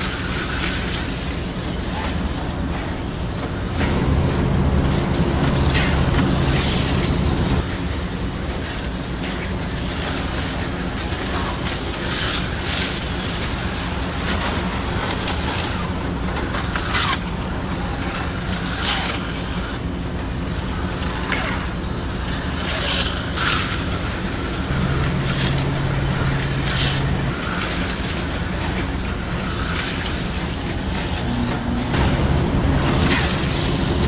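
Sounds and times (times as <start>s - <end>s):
low electrical hum: 0.0s - 34.0s
slot cars whirring past: 3.6s - 9.0s, 22.2s - 34.0s.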